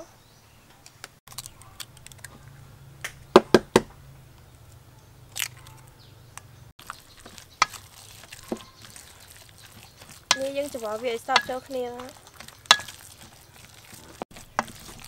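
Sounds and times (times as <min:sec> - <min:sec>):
eggshell crackling: 0:01.0 - 0:03.5, 0:04.2 - 0:15.0
spoon stirring meat in bowl: 0:06.8 - 0:15.0.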